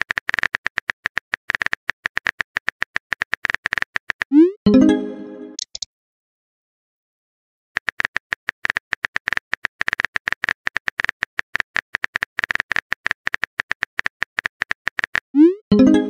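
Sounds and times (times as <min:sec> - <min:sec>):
keyboard typing clicks: 0:00.0 - 0:05.9.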